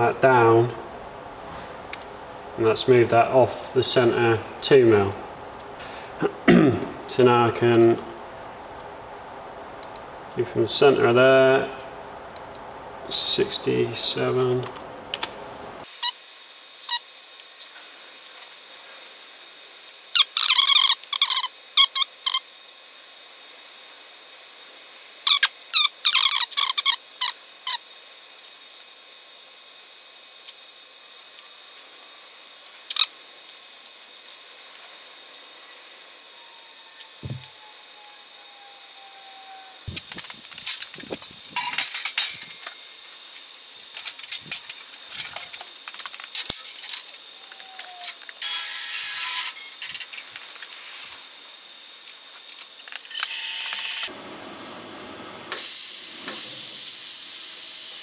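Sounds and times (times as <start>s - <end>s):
plasma torch hissing: 55.5s - 58.0s.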